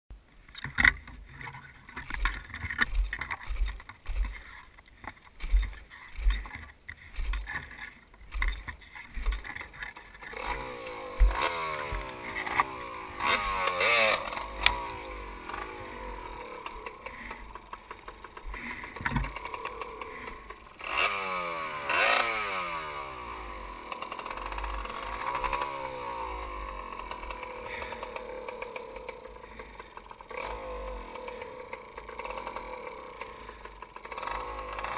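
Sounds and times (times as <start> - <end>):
dirt bike engine revving: 2.0 - 4.6, 5.4 - 34.9
bike thumping over bumps: 5.4 - 16.4.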